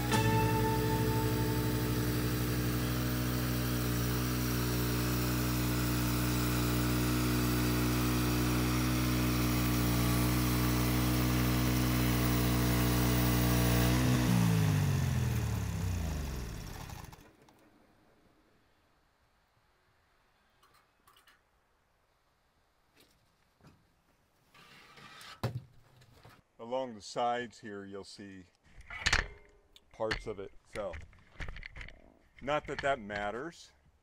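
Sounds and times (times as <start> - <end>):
saw cutting log: 0.0 - 17.2
sawmill engine running: 0.0 - 17.6.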